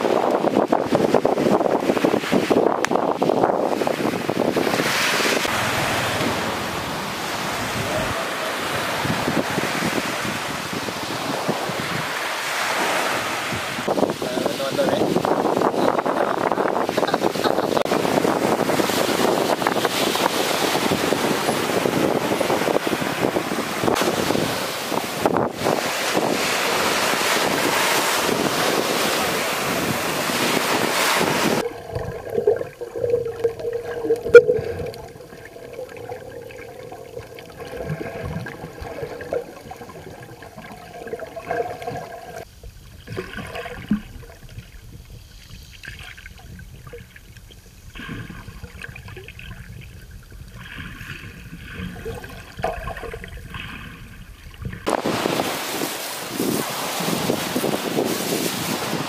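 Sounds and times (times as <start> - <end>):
small waves washing on sand: 0.0 - 49.0, 50.4 - 59.0
wind on microphone: 0.0 - 59.0
muffled underwater sound: 31.6 - 42.4.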